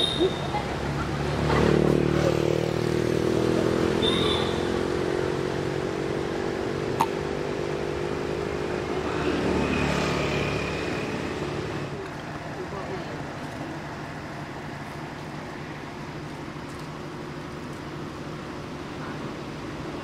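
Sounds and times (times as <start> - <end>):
vehicle engine running: 0.0 - 20.0.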